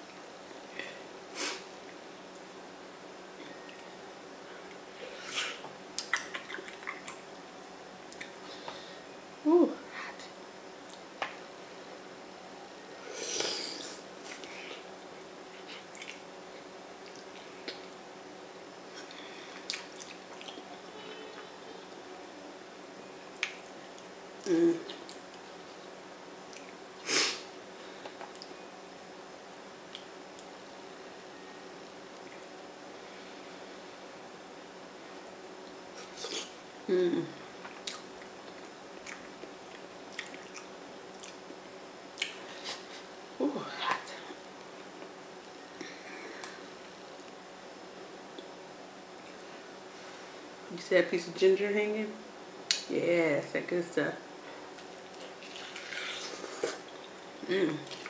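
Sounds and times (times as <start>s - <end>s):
wet chewing and mouth smacks: 15.8s - 16.2s, 19.0s - 20.7s, 37.6s - 41.6s
hummed vocal sound: 24.4s - 25.1s, 36.8s - 37.4s, 57.4s - 58.0s.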